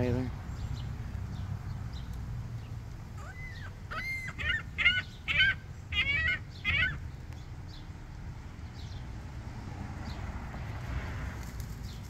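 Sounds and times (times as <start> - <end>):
gulls calling: 3.2 - 7.2.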